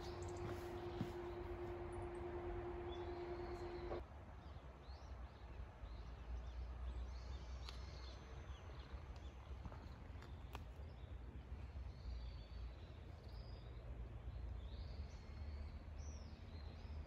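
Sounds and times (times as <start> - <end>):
low outdoor rumble: 0.0 - 4.0
steady hum: 0.0 - 4.0
small birds chirping: 0.0 - 5.1.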